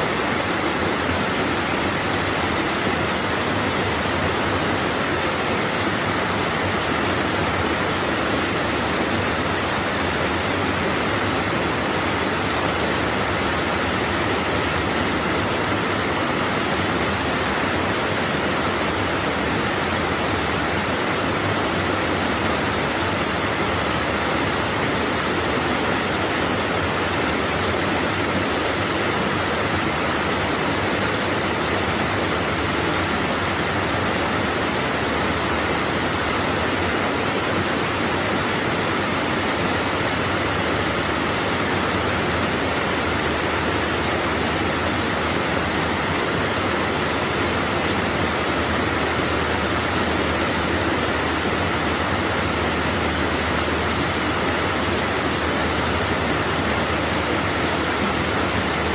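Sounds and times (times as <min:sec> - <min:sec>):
waterfall splashing over stones: 0:00.0 - 0:58.9.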